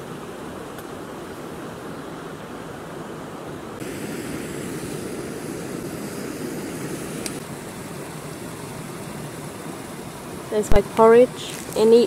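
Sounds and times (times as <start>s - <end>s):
gas stove burner roaring: 3.8s - 10.2s.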